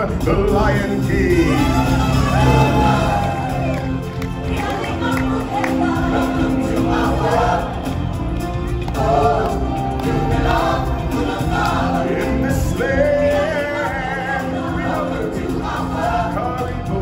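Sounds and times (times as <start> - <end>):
voices singing together: 0.0 - 17.0.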